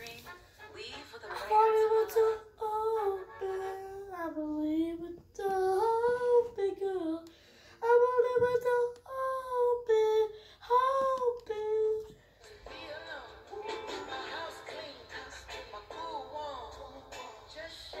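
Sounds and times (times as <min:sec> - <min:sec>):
boy singing unaccompanied: 0:01.0 - 0:12.2
breaths: 0:07.3 - 0:07.8, 0:10.3 - 0:10.7.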